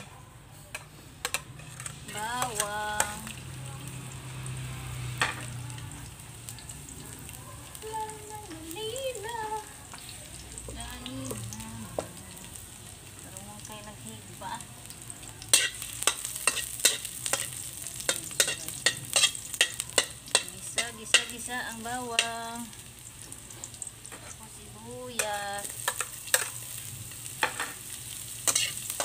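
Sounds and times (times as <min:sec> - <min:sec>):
metal spatula scraping wok: 0:00.8 - 0:03.3, 0:15.5 - 0:21.3, 0:27.4 - 0:29.0
garlic sizzling in oil: 0:01.1 - 0:29.0.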